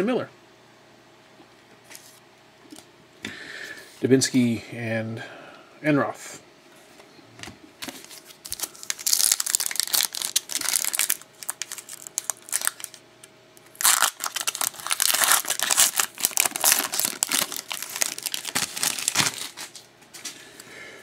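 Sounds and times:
foil wrapper crinkling and tearing: 7.8s - 13.0s, 13.7s - 19.9s.

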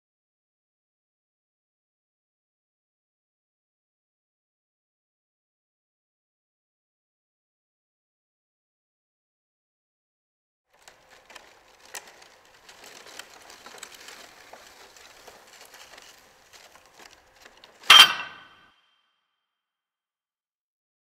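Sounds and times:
crumpled paper rustling: 10.7s - 17.9s
sharp hit with ringing tone: 17.9s - 18.6s.

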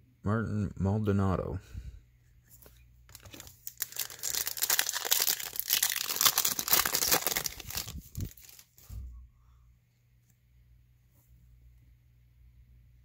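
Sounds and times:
foil wrapper tearing and crinkling: 3.1s - 8.8s.

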